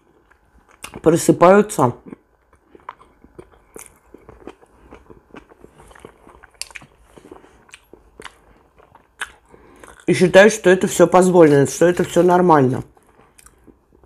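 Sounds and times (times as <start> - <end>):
chewing food: 0.0 - 1.1, 2.0 - 10.3, 12.8 - 14.0.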